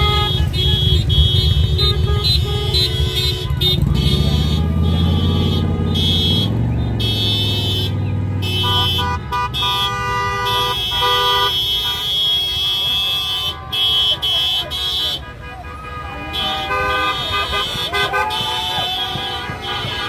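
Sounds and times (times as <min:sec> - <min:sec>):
deep engine rumble: 0:00.0 - 0:09.8
car horns honking: 0:00.0 - 0:20.0
passing vehicle engines: 0:00.0 - 0:20.0.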